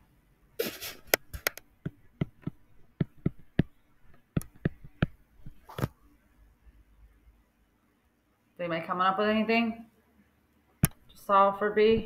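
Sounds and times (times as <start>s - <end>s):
pen tapping on writing surface: 1.5s - 5.6s.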